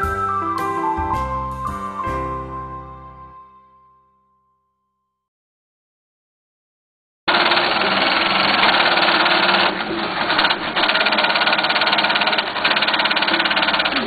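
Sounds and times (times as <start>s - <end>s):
industrial sewing machine stitching: 7.3s - 14.0s.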